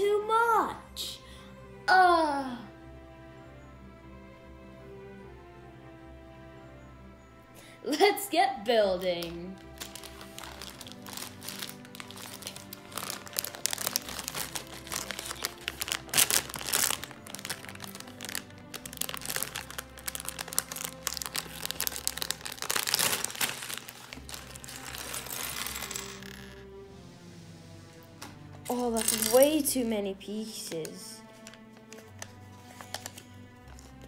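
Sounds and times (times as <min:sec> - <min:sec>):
background music: 0:00.0 - 0:34.0
plastic bag crinkling: 0:09.2 - 0:26.6, 0:28.7 - 0:29.6, 0:31.3 - 0:33.2.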